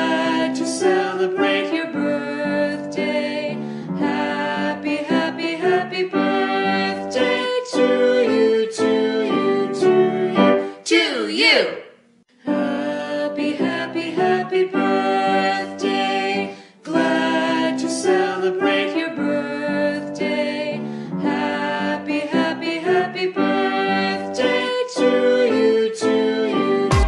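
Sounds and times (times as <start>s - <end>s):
background music held notes: 12.4s - 27.0s.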